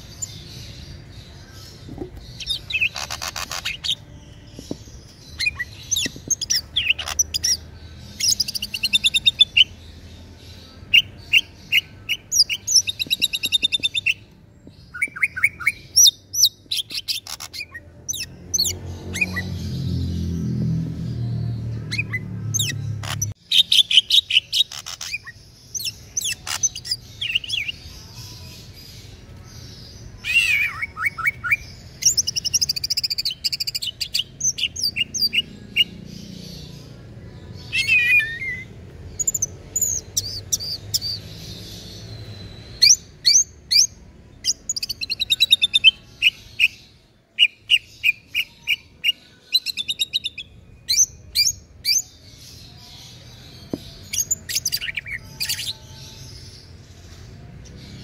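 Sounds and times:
bird singing: 0.0s - 58.0s.

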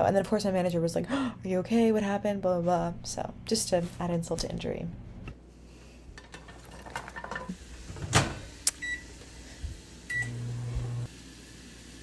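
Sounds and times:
microwave oven humming: 7.6s - 12.0s.

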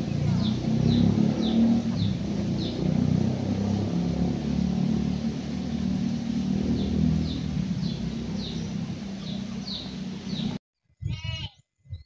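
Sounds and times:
bird chirping: 0.0s - 4.0s, 4.9s - 10.6s
low rumble: 0.0s - 10.6s.

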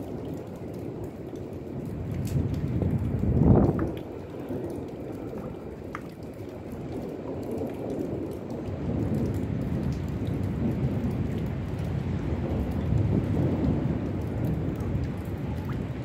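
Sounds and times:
drip ticks: 0.0s - 16.0s
low rumble of thunder: 0.0s - 16.0s
rain falling steadily: 0.0s - 16.0s.

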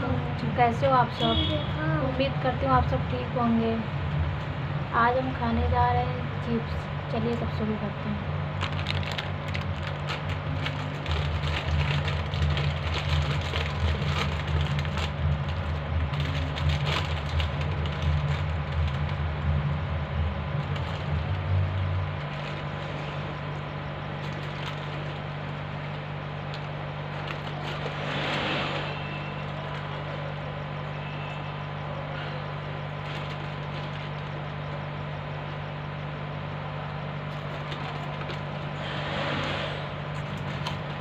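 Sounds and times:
low steady hum: 0.0s - 41.0s
plastic packet crinkling: 8.6s - 19.3s, 20.5s - 22.9s, 24.2s - 28.0s, 33.0s - 34.3s
chips crunching: 8.6s - 19.6s.

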